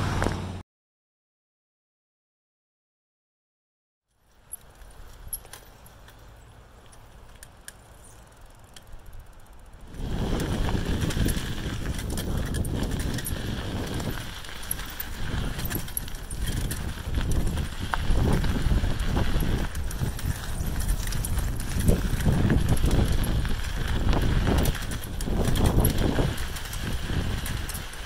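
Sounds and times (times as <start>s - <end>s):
crunching on gravel trail: 4.2s - 28.0s
small ticks: 4.5s - 9.8s.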